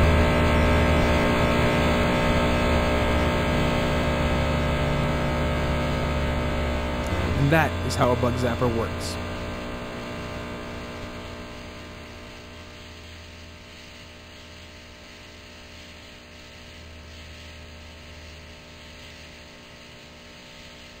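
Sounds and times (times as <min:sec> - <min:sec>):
bug zapper humming: 0:00.0 - 0:21.0.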